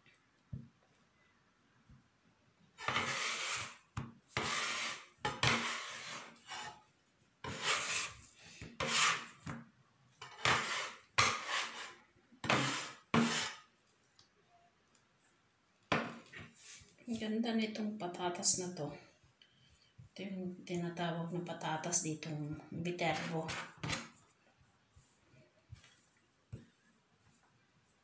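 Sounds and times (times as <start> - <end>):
rough scraping strokes: 2.8 - 3.8, 4.4 - 6.8, 7.4 - 9.4, 10.2 - 13.6.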